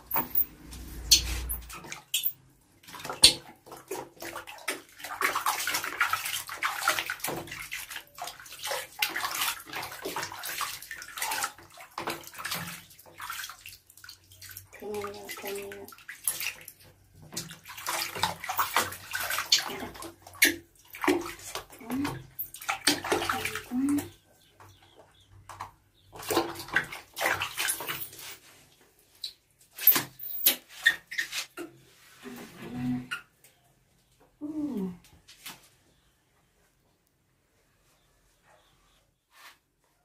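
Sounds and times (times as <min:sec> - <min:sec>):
water dripping: 0:00.0 - 0:28.4
water splashing in plastic basin: 0:00.1 - 0:31.8.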